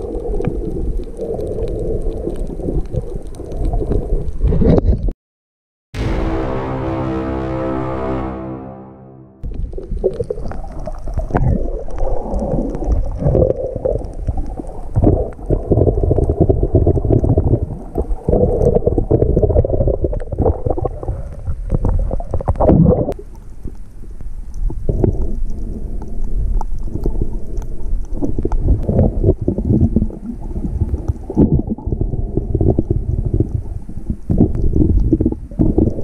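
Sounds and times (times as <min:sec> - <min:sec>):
muffled underwater rumbling and gurgling: 0:00.0 - 0:05.1, 0:09.4 - 0:36.0.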